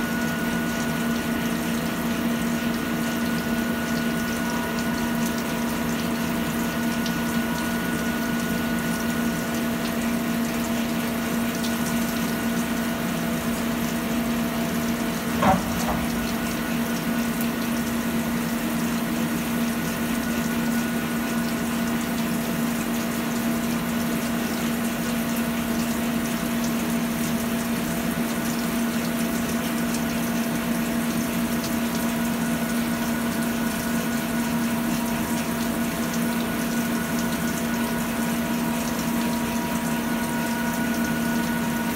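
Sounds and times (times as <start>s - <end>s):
sharp knock: 15.4s - 16.2s.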